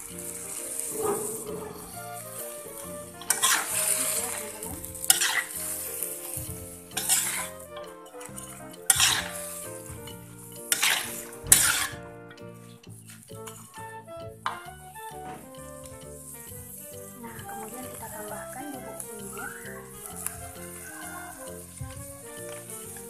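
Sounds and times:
food sizzling: 0:00.0 - 0:23.0
metal spatula scraping a wok: 0:00.1 - 0:12.0.

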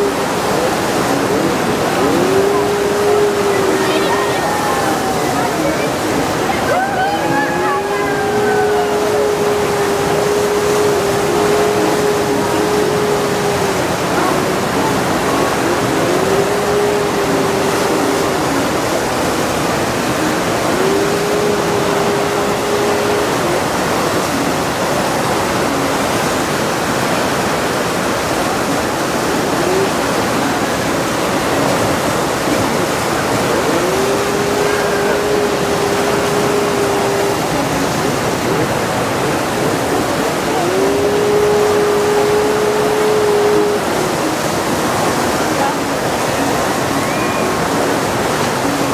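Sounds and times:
droning tone: 0:00.0 - 0:48.9
rushing white water: 0:00.0 - 0:48.9.

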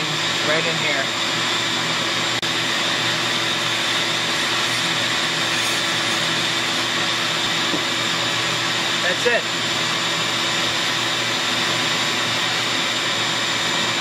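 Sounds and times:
shop vacuum running: 0:00.0 - 0:14.0
rotary tool grinding metal: 0:02.7 - 0:09.2.

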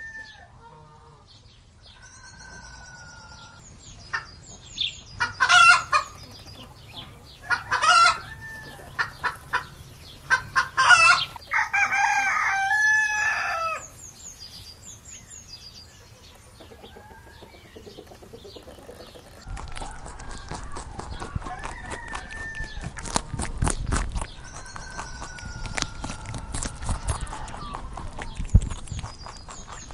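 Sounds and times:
rooster crowing: 0:00.0 - 0:00.5, 0:07.4 - 0:09.3, 0:10.3 - 0:13.9, 0:19.9 - 0:22.9
small birds chirping: 0:01.2 - 0:29.9
chickens clucking: 0:02.0 - 0:14.6, 0:15.5 - 0:29.9
chickens squawking: 0:02.3 - 0:14.0, 0:15.9 - 0:29.9.

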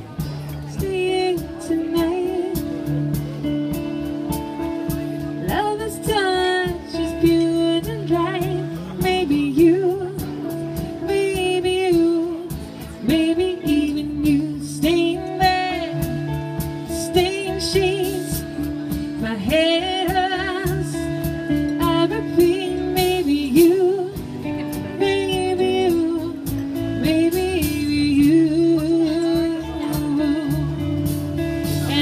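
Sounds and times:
acoustic and electric guitars: 0:00.0 - 0:32.0
steady drum beat: 0:00.0 - 0:32.0
woman singing with vibrato: 0:00.7 - 0:02.7, 0:05.4 - 0:31.1, 0:31.8 - 0:32.0.

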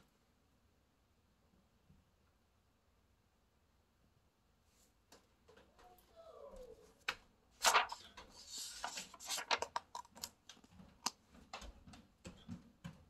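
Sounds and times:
paper snap: 0:07.1 - 0:10.3
paper page rustling: 0:07.6 - 0:10.4.

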